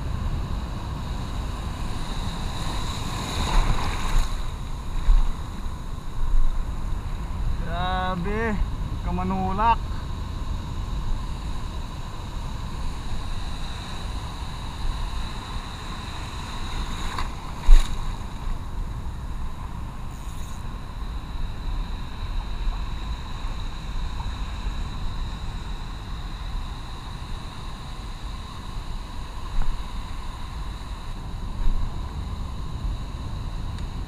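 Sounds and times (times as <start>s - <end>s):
wind on microphone: 0.0s - 9.2s
surf swirling: 1.0s - 8.4s, 11.9s - 20.0s.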